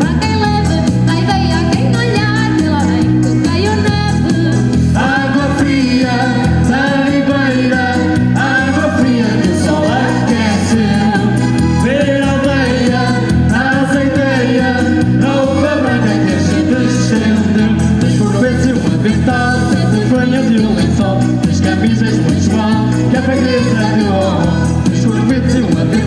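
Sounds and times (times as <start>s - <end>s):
live band music: 0.0s - 26.0s.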